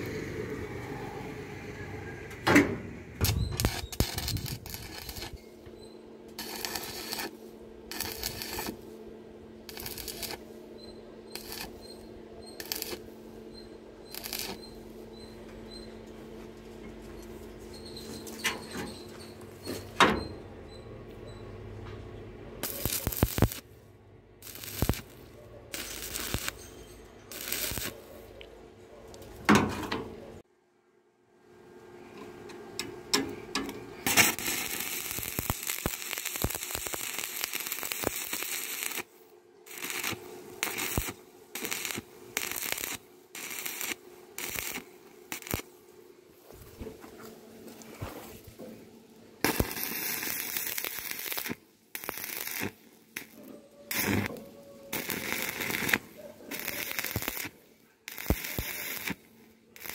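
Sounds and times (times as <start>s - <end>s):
welding arc crackling: 3.2s - 5.4s, 6.3s - 8.9s, 9.6s - 10.5s, 11.3s - 13.2s, 14.1s - 14.8s, 22.6s - 23.7s, 24.4s - 26.6s, 27.3s - 28.2s, 34.0s - 39.1s, 39.7s - 45.7s, 49.4s - 59.9s.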